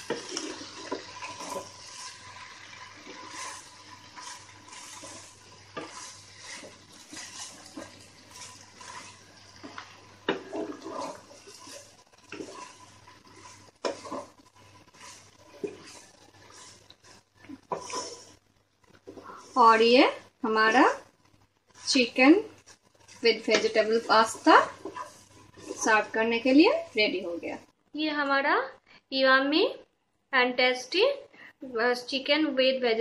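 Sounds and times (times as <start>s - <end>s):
spatula stirring thick sauce: 0.0s - 19.6s, 21.7s - 26.5s.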